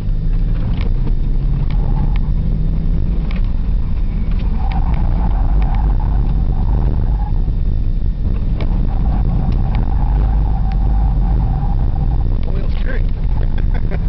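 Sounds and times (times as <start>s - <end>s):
car engine rumble from inside cabin: 0.0s - 14.0s
faint whine: 0.0s - 14.0s
sharp ticks: 8.3s - 13.3s.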